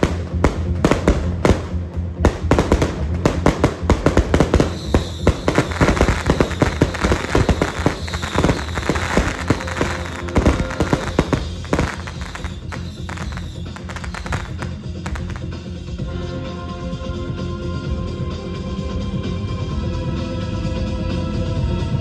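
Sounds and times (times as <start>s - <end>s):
firecrackers cracking: 0.0s - 15.7s
background music: 0.0s - 22.0s.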